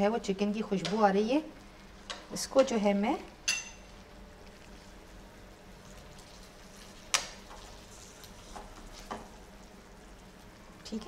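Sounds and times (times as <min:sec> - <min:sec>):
food sizzling in a pan: 0:04.6 - 0:11.0.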